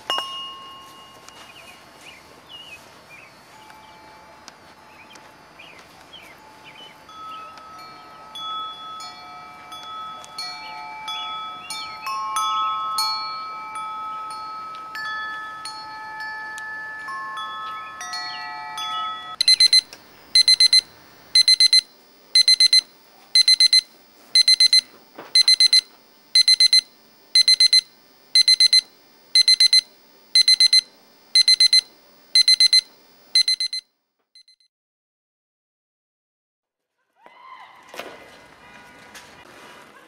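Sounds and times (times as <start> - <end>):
soft chime-like bell music: 0.0 - 2.1, 3.2 - 19.4
digital alarm clock beeping: 19.4 - 34.6.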